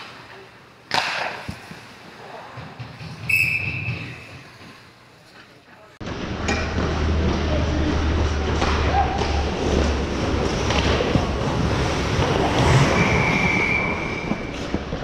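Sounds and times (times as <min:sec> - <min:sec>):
low arena hum: 0:00.0 - 0:15.0
hockey knocks and thuds: 0:02.5 - 0:04.8, 0:08.5 - 0:12.8
steady high whistle tone: 0:03.3 - 0:04.2, 0:12.8 - 0:14.7.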